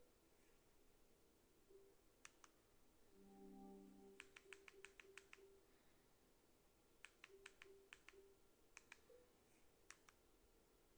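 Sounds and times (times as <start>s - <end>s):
soft low menu tones: 3.1s - 5.6s.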